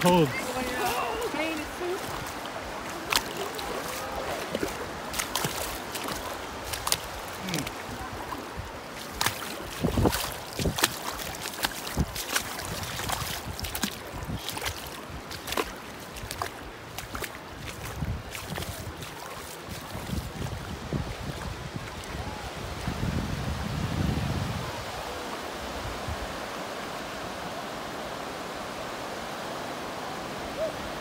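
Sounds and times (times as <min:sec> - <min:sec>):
feet splashing in water: 0:00.0 - 0:22.2
shallow surf: 0:00.0 - 0:31.0
wind: 0:00.0 - 0:31.0.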